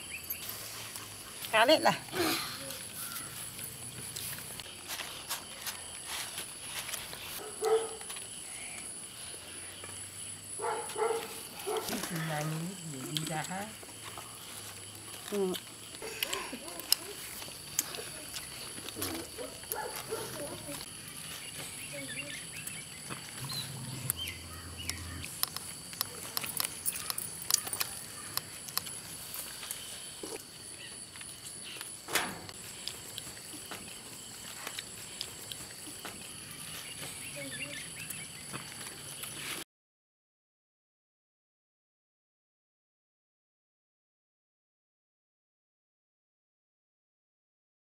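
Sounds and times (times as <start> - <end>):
crunchy food crackling while eaten: 2.5 - 10.0, 10.6 - 39.6
dog barking: 7.4 - 8.1, 10.6 - 12.0, 19.1 - 20.7.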